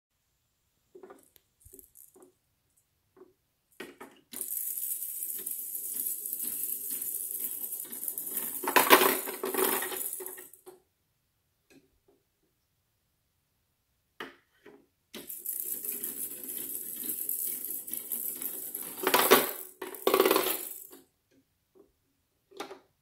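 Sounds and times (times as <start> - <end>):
ball rattling down plastic ramp: 3.8 - 10.8, 15.2 - 21.0.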